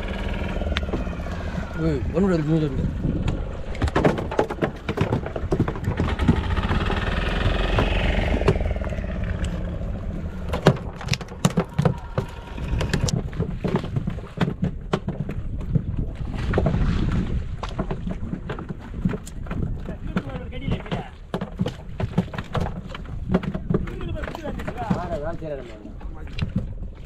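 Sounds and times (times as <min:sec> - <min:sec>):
boat engine rumbling: 0:00.0 - 0:27.0
knocks and clatter on deck: 0:03.2 - 0:08.8, 0:10.5 - 0:16.8, 0:17.6 - 0:25.5.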